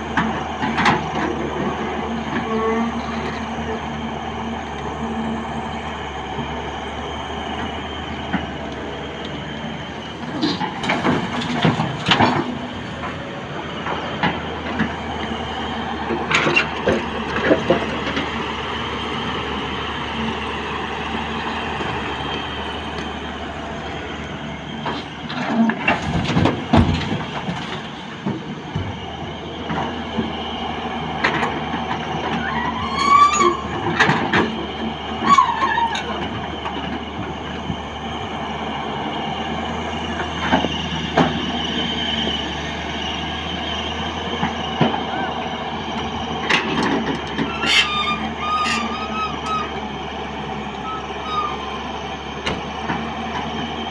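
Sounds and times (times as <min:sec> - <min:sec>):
excavator engine and hydraulics: 0:00.0 - 0:53.9
short squeals: 0:32.4 - 0:33.8, 0:47.4 - 0:50.0, 0:50.6 - 0:52.2.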